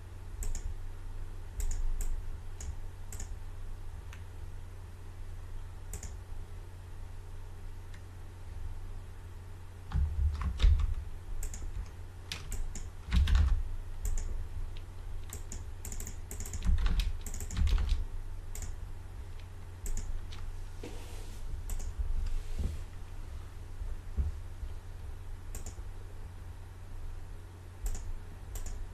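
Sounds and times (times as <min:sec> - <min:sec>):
keyboard keystrokes: 0:00.4 - 0:00.7, 0:01.6 - 0:03.4, 0:09.9 - 0:18.8, 0:19.8 - 0:20.5, 0:21.7 - 0:22.0, 0:25.5 - 0:25.8, 0:27.9 - 0:28.8
mouse clicks: 0:00.4 - 0:00.7, 0:01.6 - 0:03.4, 0:05.9 - 0:06.2, 0:11.4 - 0:12.9, 0:14.0 - 0:17.6, 0:19.4 - 0:20.5, 0:21.7 - 0:22.0, 0:25.5 - 0:25.8, 0:27.8 - 0:28.8.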